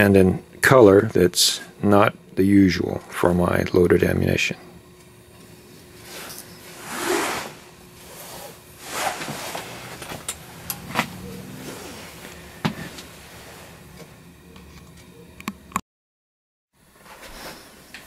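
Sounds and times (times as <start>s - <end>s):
clothing rustling: 6.0s - 13.8s.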